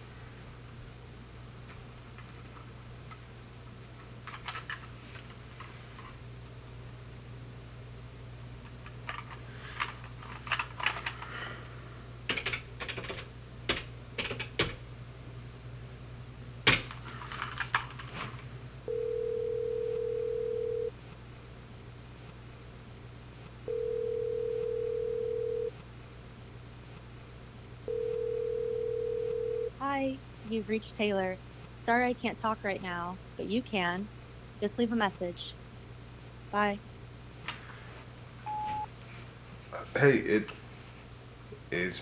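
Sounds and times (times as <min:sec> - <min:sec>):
phone ringing tone: 0:18.9 - 0:20.9, 0:23.7 - 0:25.8, 0:27.9 - 0:29.7, 0:38.5 - 0:38.9.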